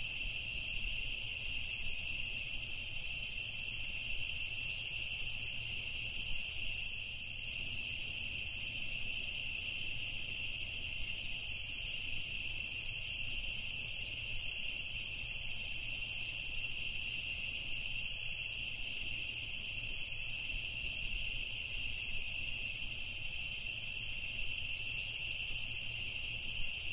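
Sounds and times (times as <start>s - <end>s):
crickets trilling: 0.0s - 26.9s.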